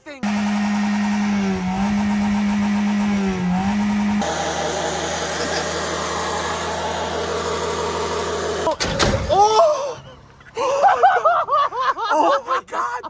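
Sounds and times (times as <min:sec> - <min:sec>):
car engine running: 0:00.2 - 0:08.8
loud engine clatter: 0:00.2 - 0:09.2
person yelling: 0:09.3 - 0:10.0.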